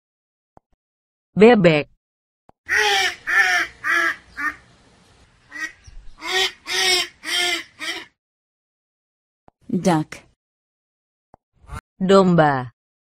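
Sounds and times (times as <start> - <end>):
duck quacking: 2.7 - 4.7, 5.5 - 8.2.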